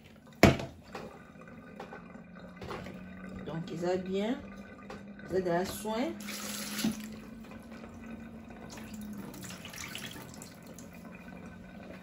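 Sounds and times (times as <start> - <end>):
water poured into sink: 0.0 - 12.0
tap running into plastic bowl: 4.8 - 5.9, 6.7 - 7.8.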